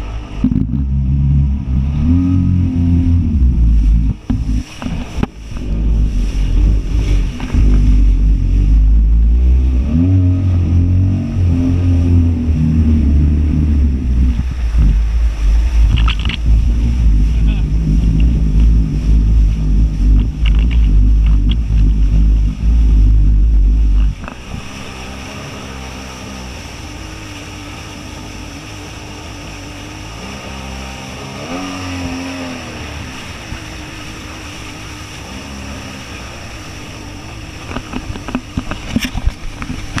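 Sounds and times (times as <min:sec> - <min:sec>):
wind buffeting microphone: 0:00.0 - 0:25.7
churning wake water hiss: 0:00.0 - 0:40.0
watercraft engine running: 0:00.0 - 0:40.0.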